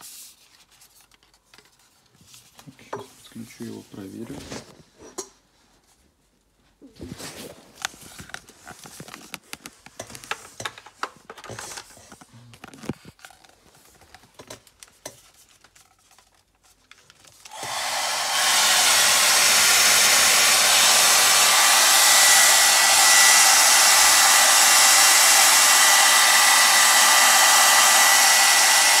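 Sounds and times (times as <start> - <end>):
handling clicks and rustles: 7.1 - 17.4
hair dryer brush running: 17.5 - 29.0.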